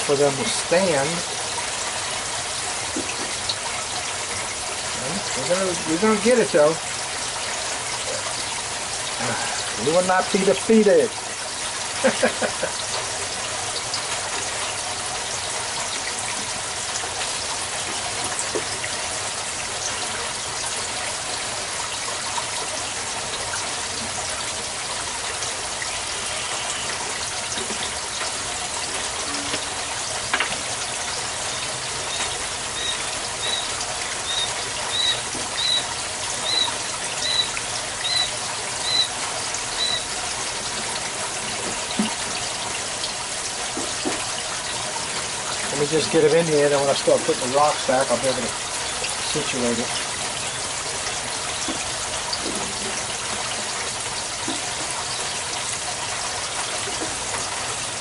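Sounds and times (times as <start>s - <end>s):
water pouring from pipe: 0.0s - 58.0s
bird chirping: 31.5s - 40.1s.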